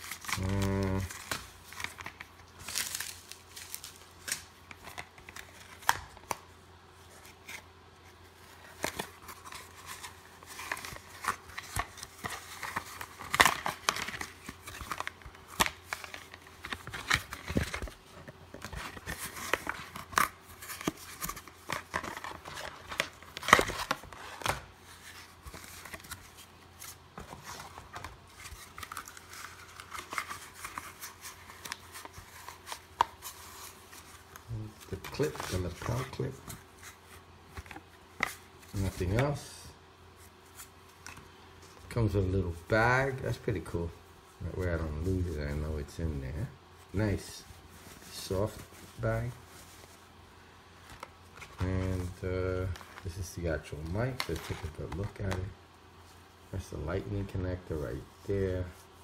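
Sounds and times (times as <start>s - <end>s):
cardboard and foam rustling: 7.0s - 39.5s, 44.4s - 50.1s, 50.8s - 59.0s.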